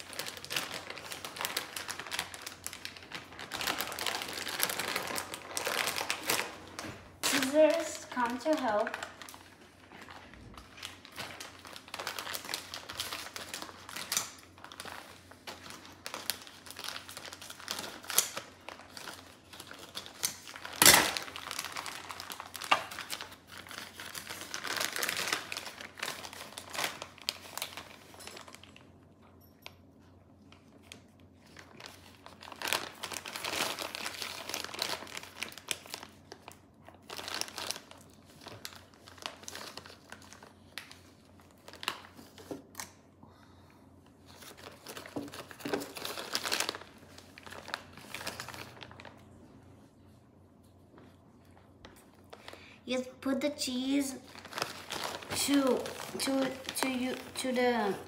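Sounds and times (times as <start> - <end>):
plastic bag crinkling: 0.0 - 29.1, 30.4 - 43.0, 44.2 - 49.6, 50.9 - 58.0.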